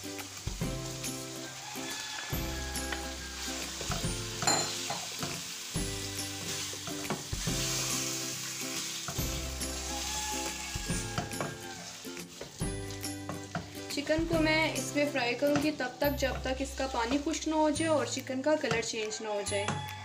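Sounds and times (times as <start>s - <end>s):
chicken sizzling in hot oil: 0.0s - 17.8s
wooden spatula scraping a pan: 6.4s - 12.6s.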